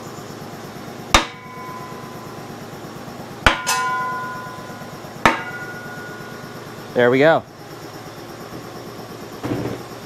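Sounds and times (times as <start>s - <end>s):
short metallic ring: 1.3s - 2.6s, 3.5s - 6.8s.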